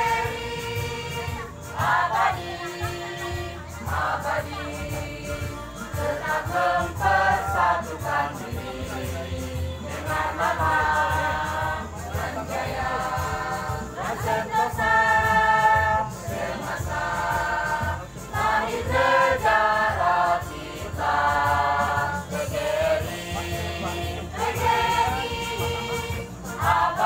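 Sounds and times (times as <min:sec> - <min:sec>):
choir singing: 0:00.0 - 0:27.0.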